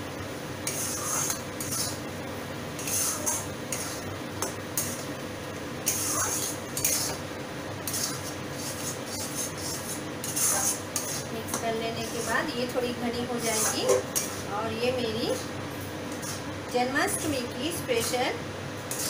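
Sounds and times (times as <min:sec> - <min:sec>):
spatula scraping sticky mixture: 0:00.6 - 0:02.1, 0:02.8 - 0:04.1, 0:05.8 - 0:07.2, 0:07.8 - 0:14.6.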